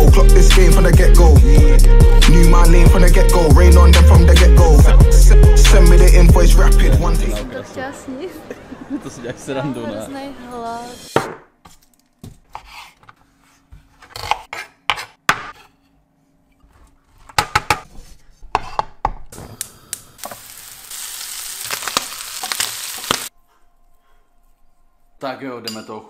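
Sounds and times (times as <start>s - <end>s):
bacon and onion sizzling: 19.4s - 23.3s.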